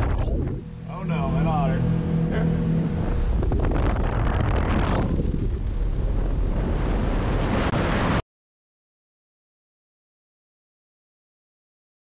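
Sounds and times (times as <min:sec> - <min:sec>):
wind buffeting microphone: 0:02.9 - 0:08.2.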